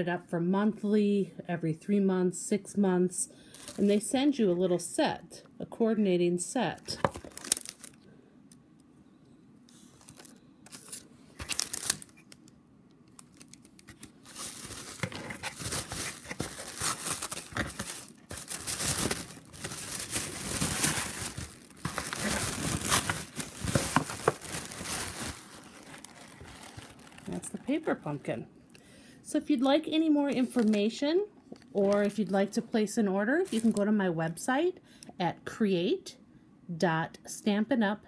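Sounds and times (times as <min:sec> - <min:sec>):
tissue paper crinkling: 0:03.5 - 0:03.9, 0:07.0 - 0:08.0, 0:09.8 - 0:12.3, 0:13.2 - 0:28.2, 0:33.5 - 0:33.8.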